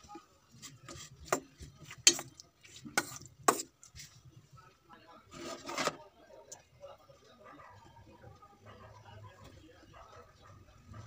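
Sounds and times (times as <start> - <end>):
spoon stirring food in bowl: 0.5 - 4.3.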